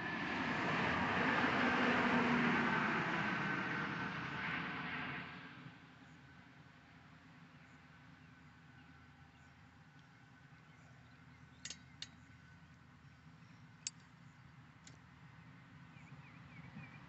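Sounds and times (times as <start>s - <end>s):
light clicks: 11.6s - 12.2s, 13.8s - 14.2s.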